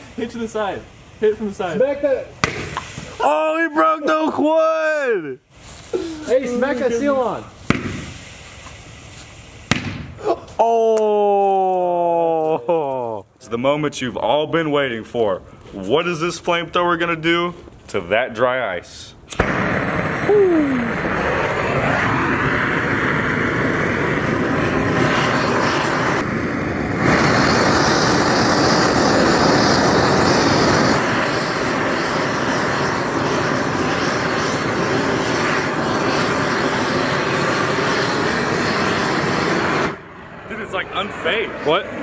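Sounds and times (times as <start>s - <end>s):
flamethrower flame roaring: 5.7s - 10.2s, 19.3s - 42.0s.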